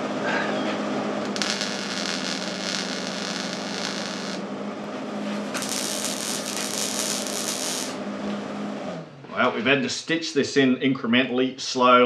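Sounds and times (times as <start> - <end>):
steady low hum: 0.0 - 10.1
welder arcing crackling and hissing: 1.2 - 4.4, 5.5 - 8.0.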